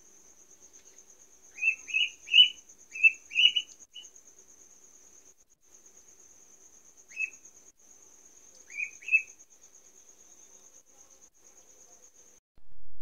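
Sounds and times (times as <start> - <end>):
cricket trilling: 0.0 - 12.4
duckling peeping: 1.6 - 3.7.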